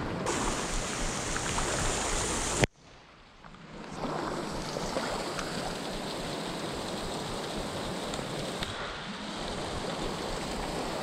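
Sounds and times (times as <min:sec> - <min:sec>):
heavy rain on river: 0:00.0 - 0:02.7
river water rushing: 0:00.0 - 0:02.7, 0:04.0 - 0:11.0.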